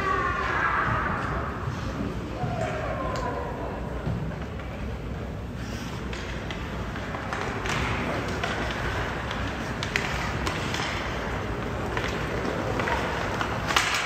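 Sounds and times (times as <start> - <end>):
hockey sticks and puck clacking: 4.0 - 14.0
skates scraping on ice: 5.6 - 14.0.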